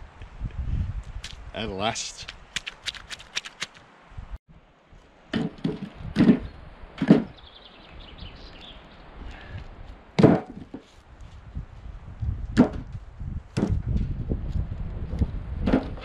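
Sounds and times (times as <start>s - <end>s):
firewood tossed onto wood pile: 10.2s - 10.9s, 15.6s - 16.0s.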